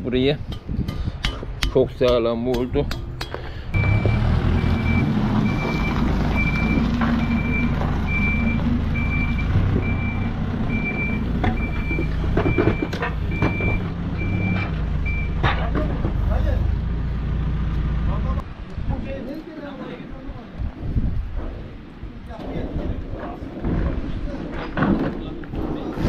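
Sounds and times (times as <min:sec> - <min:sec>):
diesel engine droning: 0:03.2 - 0:18.4
reversing alarm beeping: 0:03.8 - 0:15.4.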